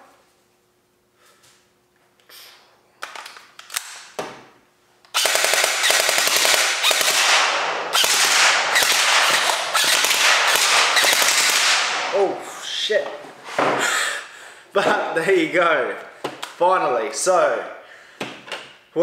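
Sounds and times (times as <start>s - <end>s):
gel blaster firing full auto: 5.1s - 12.2s.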